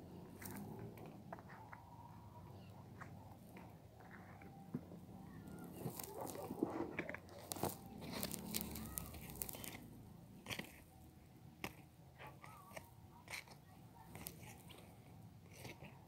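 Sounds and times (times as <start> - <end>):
soft handling rustling: 0.2 - 16.0.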